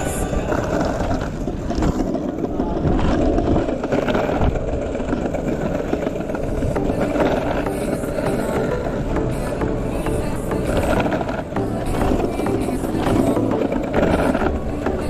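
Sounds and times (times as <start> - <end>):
longboard wheels rolling on pavement: 0.0 - 15.0.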